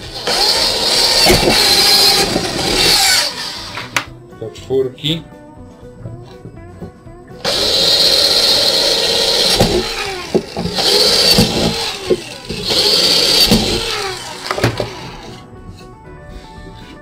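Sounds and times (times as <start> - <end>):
power drill whining: 0.0 - 4.0, 7.4 - 15.4.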